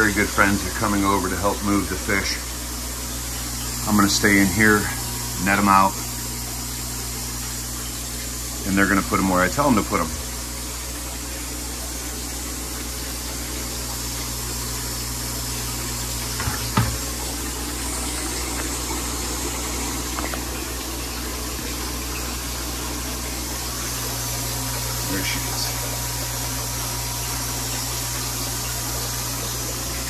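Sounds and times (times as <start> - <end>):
aquarium pumps humming: 0.0 - 30.0
moving water: 0.0 - 30.0.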